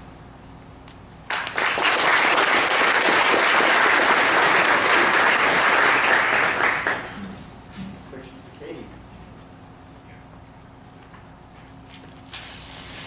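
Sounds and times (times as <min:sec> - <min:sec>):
audience applauding: 0:01.3 - 0:07.2.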